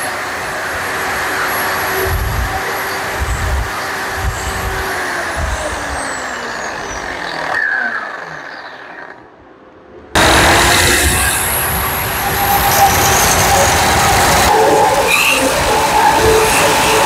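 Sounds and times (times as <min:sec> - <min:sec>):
wire brush grinder scrubbing steel: 0:00.0 - 0:09.2, 0:10.2 - 0:17.0
grinder winding down: 0:00.0 - 0:09.4, 0:10.2 - 0:17.0.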